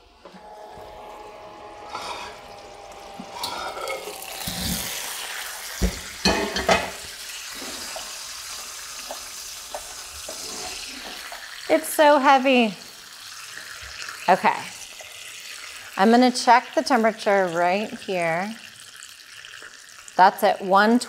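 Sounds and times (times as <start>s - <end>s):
roast chicken sizzling in pan: 0.0s - 20.2s
metal pan clanks: 3.4s - 4.6s, 5.8s - 7.0s.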